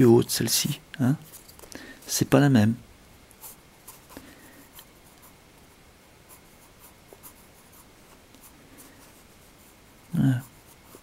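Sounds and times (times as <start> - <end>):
pencil scratching on paper: 6.3 - 11.0.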